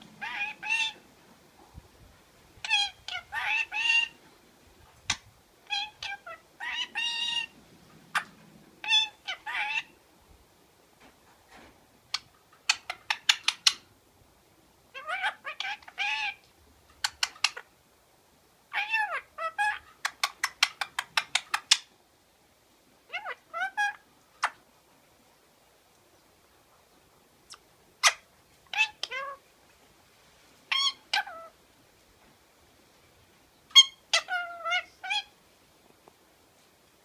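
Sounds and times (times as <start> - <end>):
parakeet talking and chattering: 0.0 - 1.0, 2.6 - 4.2, 5.0 - 10.0, 12.0 - 13.9, 14.9 - 17.7, 18.7 - 21.9, 23.1 - 24.6, 27.5 - 29.4, 30.7 - 31.6, 33.7 - 35.3.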